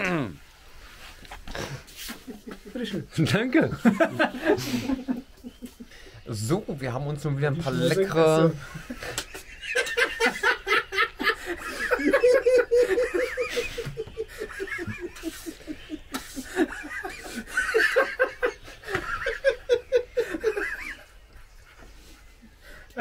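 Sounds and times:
person laughing: 8.8 - 21.1.

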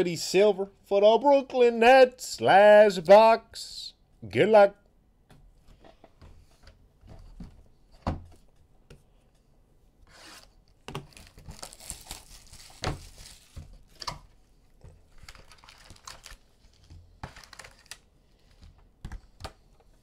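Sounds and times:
plastic wrap tearing and crinkling: 11.0 - 14.2, 15.1 - 18.1.

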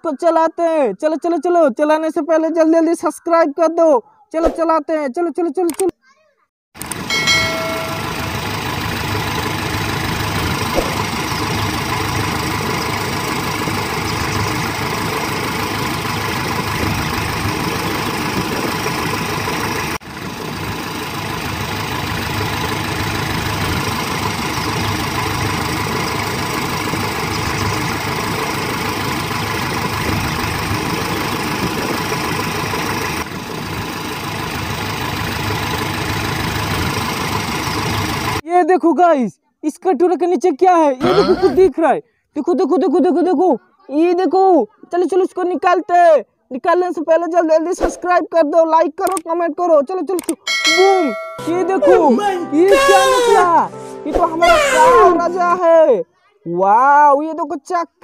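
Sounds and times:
toy diesel engine idling: 6.8 - 38.4.

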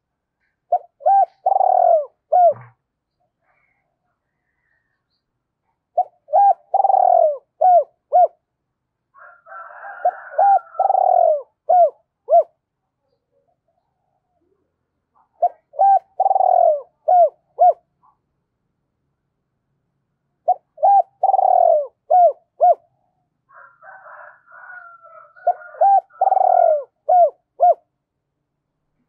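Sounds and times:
dove cooing: 0.7 - 2.8, 5.9 - 8.4, 9.3 - 12.6, 15.2 - 18.2, 20.4 - 27.9.

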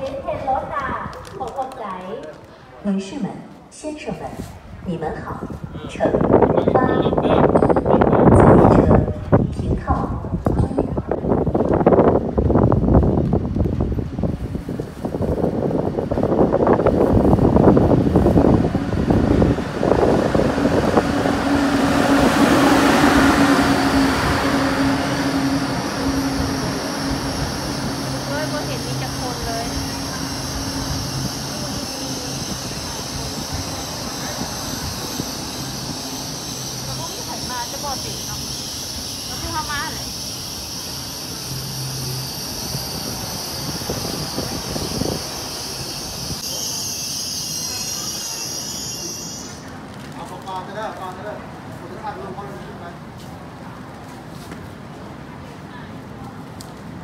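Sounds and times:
electric train hum: 0.0 - 57.0
carriages rushing past: 15.0 - 46.8.

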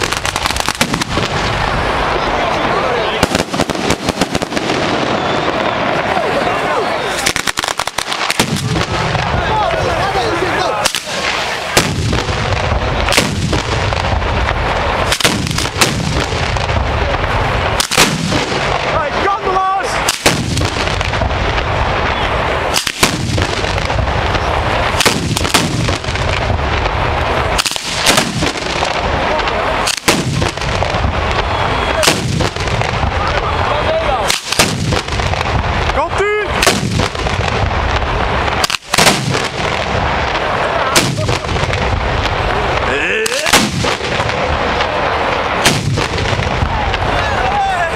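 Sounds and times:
firework whistling glides: 0.0 - 9.2, 19.8 - 35.1
firecracker rattle: 0.0 - 47.9
loud firework bangs: 0.0 - 47.9.

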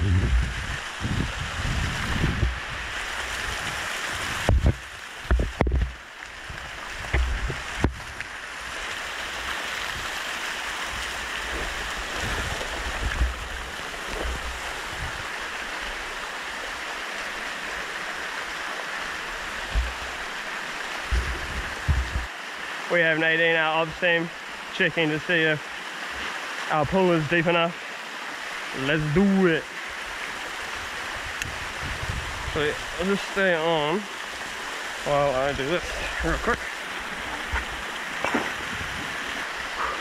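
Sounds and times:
low bumps: 0.0 - 2.6, 19.6 - 20.2, 21.0 - 22.3
stream water rushing: 0.0 - 40.0.

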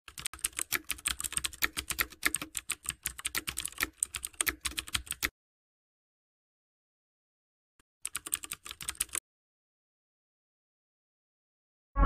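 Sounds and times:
computer keyboard typing: 0.1 - 5.3, 8.0 - 9.2.

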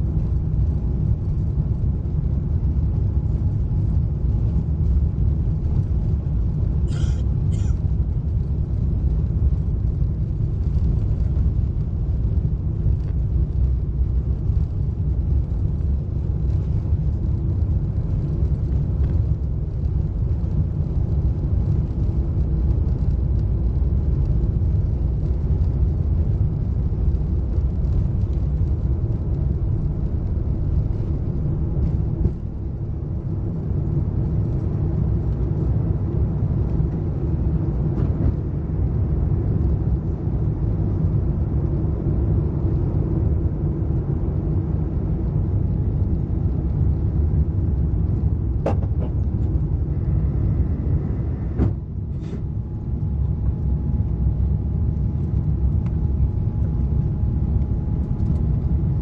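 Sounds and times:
jet engines rumbling in cabin: 0.0 - 59.0.

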